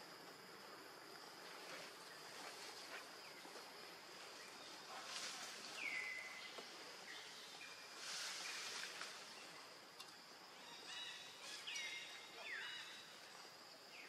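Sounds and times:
high insect drone: 0.0 - 14.0
hissy rustles: 1.3 - 9.6.

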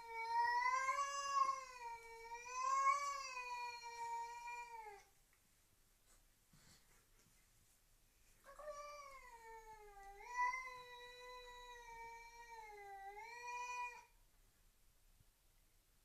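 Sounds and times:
cat yowling: 0.0 - 5.1.

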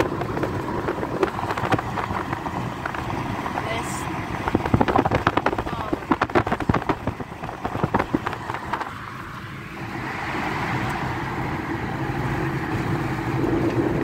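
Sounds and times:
tyre and engine road noise: 0.0 - 14.0.

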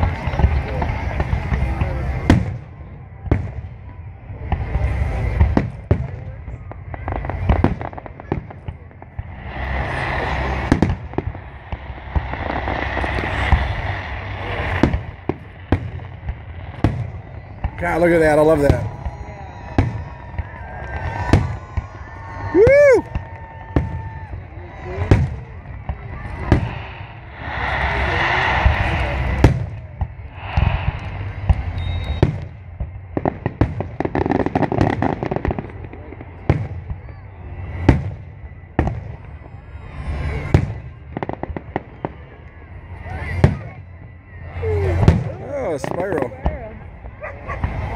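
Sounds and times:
crackling fireworks pops: 0.0 - 47.9
fireworks booming: 0.0 - 47.9.

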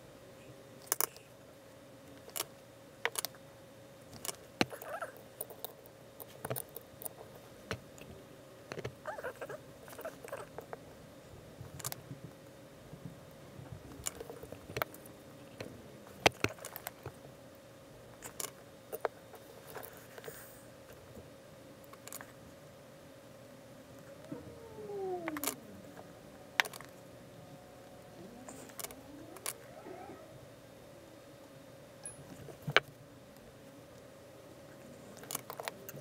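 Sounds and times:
faint steady hum: 0.0 - 36.0
small clicks taps and scrapes: 2.1 - 3.4, 4.1 - 10.8, 11.6 - 12.4, 13.9 - 17.2, 18.2 - 21.2, 21.9 - 22.4, 25.2 - 26.0, 26.6 - 27.0, 34.7 - 36.0.

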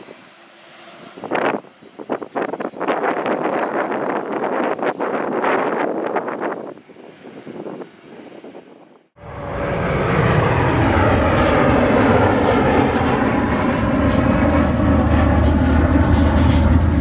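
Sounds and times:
jet engine roar: 0.0 - 17.0
low hum: 9.2 - 17.0.

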